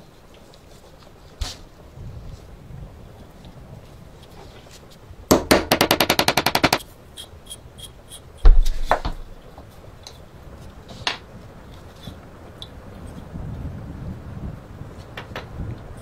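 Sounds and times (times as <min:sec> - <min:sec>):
heavy knock with deep thud: 0:08.4 - 0:09.2.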